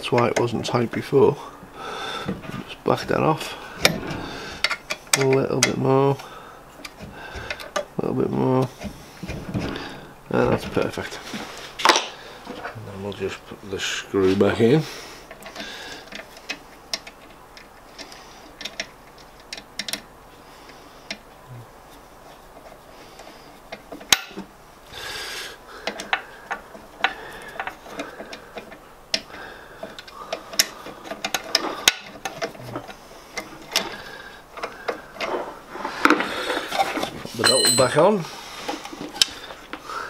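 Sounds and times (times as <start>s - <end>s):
small metallic clicks and taps: 15.3s - 20.1s
hand tools handled: 34.6s - 39.7s.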